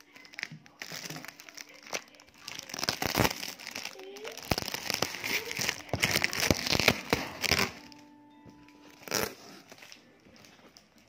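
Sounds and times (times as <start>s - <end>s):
plastic wrapping crackling: 0.0s - 11.0s.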